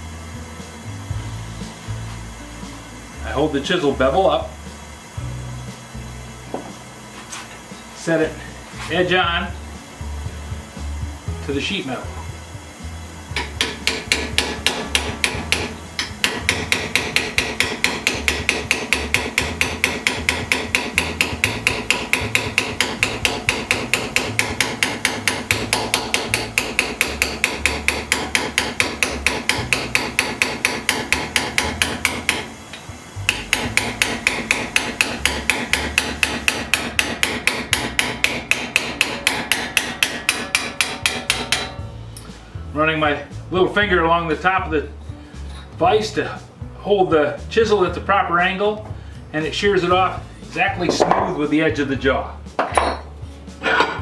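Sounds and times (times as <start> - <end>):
hammer striking chisel on metal: 13.3 - 32.5, 33.3 - 42.3, 50.8 - 51.4, 52.6 - 54.0.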